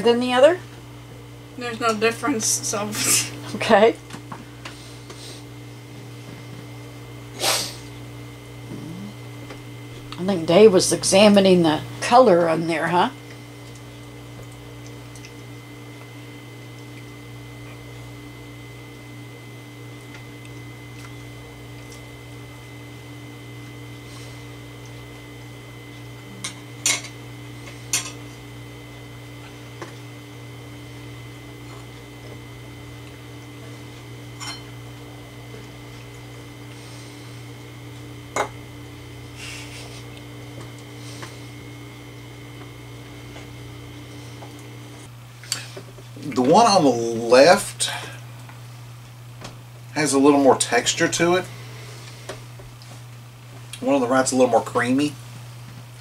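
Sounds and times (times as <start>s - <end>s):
low room hum: 0.0s - 56.0s
forks clinking on plates: 34.4s - 34.7s.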